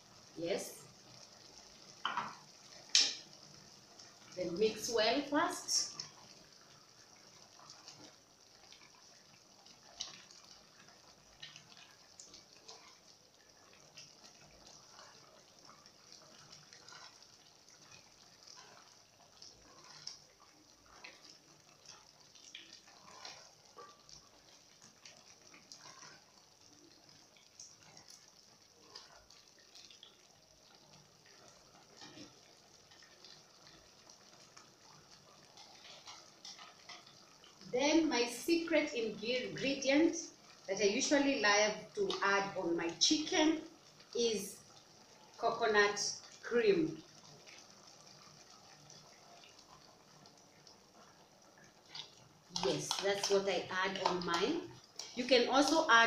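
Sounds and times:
stew simmering with pops: 0.0 - 56.0
spoon stirring wet stew: 13.7 - 30.2, 31.2 - 38.3, 51.8 - 56.0.

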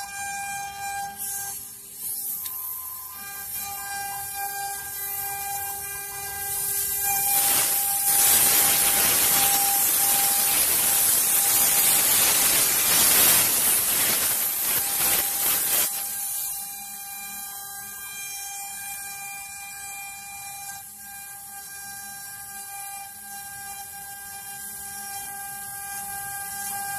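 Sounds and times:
compressed air hose hissing: 1.2 - 4.0, 4.6 - 16.0
router humming: 2.3 - 15.9.

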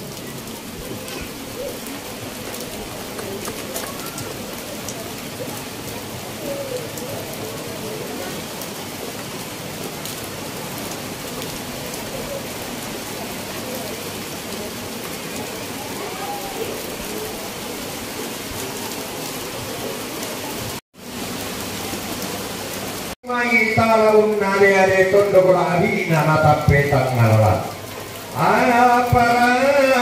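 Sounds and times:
steady rain falling: 0.0 - 30.0.

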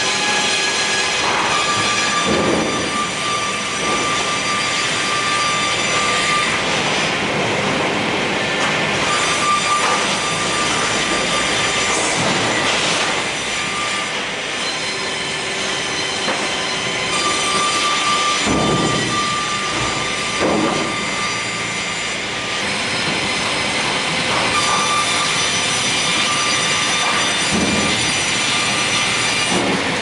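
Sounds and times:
circular saw cutting wood: 0.0 - 7.2, 9.0 - 30.0.

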